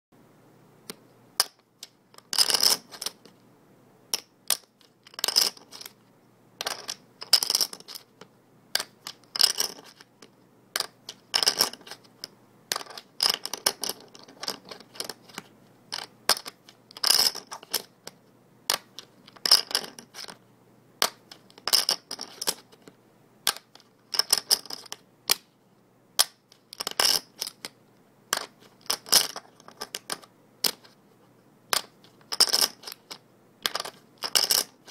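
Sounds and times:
poker chips clattering: 0:02.2 - 0:03.3, 0:04.2 - 0:06.0, 0:06.6 - 0:08.2, 0:08.8 - 0:10.1, 0:10.8 - 0:17.9, 0:18.7 - 0:20.4, 0:21.0 - 0:25.4, 0:26.2 - 0:27.7, 0:28.3 - 0:31.0, 0:31.7 - 0:34.9.

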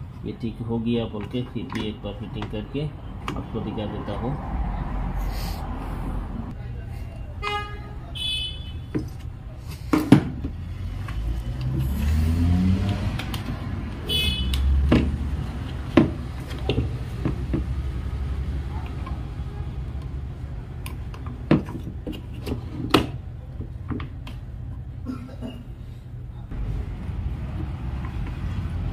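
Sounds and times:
vehicle engine rumbling: 0:00.0 - 0:28.9
knocks and clicks of plastic parts: 0:15.9 - 0:17.8.

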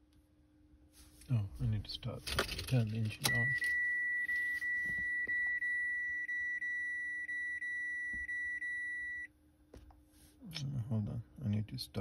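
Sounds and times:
vehicle warning buzzer tone: 0:03.2 - 0:09.3.

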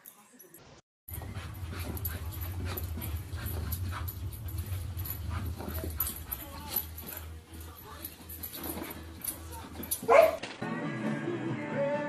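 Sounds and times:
steady low hum: 0:01.1 - 0:10.1.

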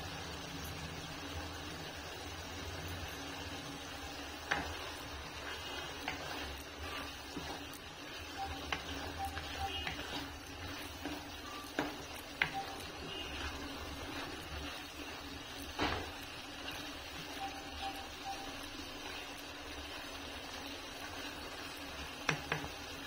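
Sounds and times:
spatula stirring thick gravy: 0:03.0 - 0:17.4
spatula tapping a pan: 0:04.2 - 0:18.0, 0:22.2 - 0:22.8.

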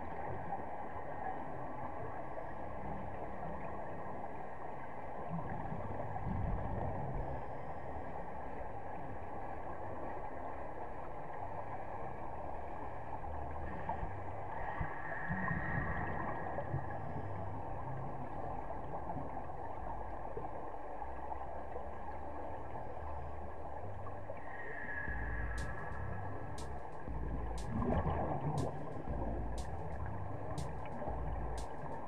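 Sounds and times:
underwater rumble and hiss: 0:00.0 - 0:32.0
regulator bubbling: 0:23.0 - 0:32.0.

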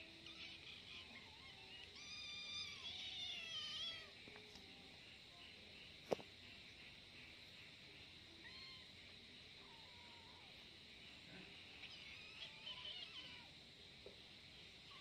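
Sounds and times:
kitten crying angrily: 0:00.2 - 0:04.1, 0:11.9 - 0:13.5.

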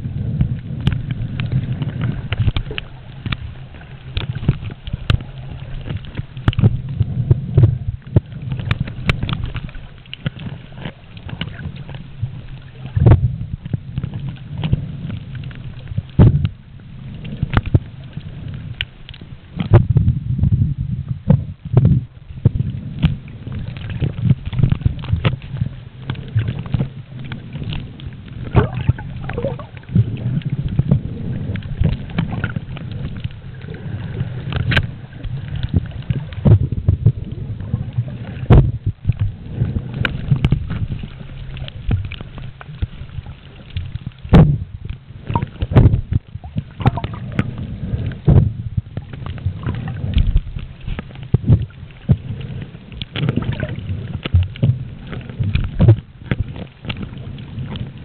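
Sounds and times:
underwater rush of water: 0:00.0 - 0:58.0
knocks and pops: 0:28.5 - 0:29.7, 0:43.7 - 0:44.6, 0:45.3 - 0:47.6.

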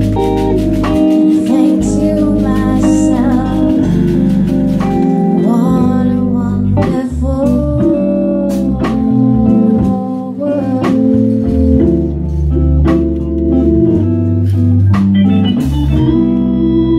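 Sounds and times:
drum and cymbal strikes: 0:00.0 - 0:06.0
electric guitar: 0:00.0 - 0:16.9
organ chords: 0:00.0 - 0:16.9
walking bass: 0:00.0 - 0:16.9
woman singing: 0:01.0 - 0:11.8.

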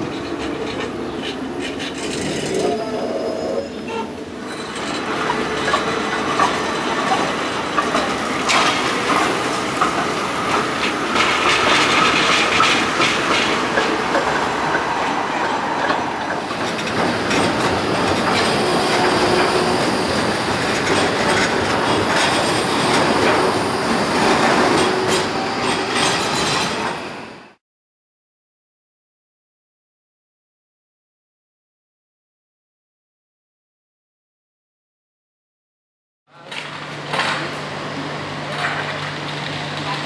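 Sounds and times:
tram wheels clattering over rail joints: 0:00.0 - 0:27.2, 0:36.4 - 0:40.0
metallic wheel squeal: 0:02.4 - 0:05.8.

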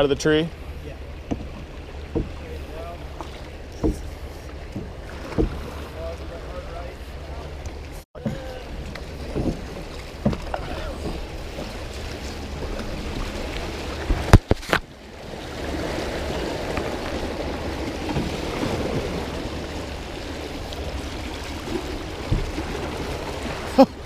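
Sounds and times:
creek water rushing: 0:00.0 - 0:24.0
canoe knocking against log: 0:01.2 - 0:02.5, 0:03.2 - 0:05.8, 0:08.2 - 0:11.8, 0:14.0 - 0:14.8, 0:21.7 - 0:22.8.

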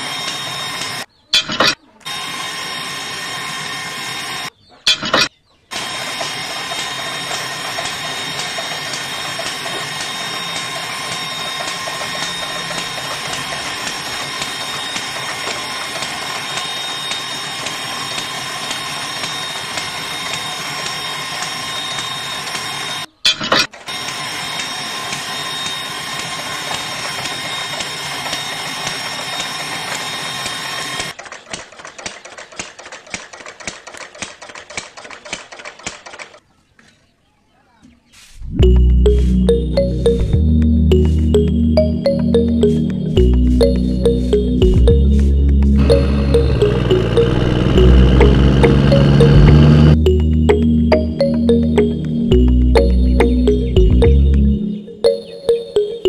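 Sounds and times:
small motor whining and rattling: 0:05.7 - 0:36.4, 0:45.8 - 0:50.0.

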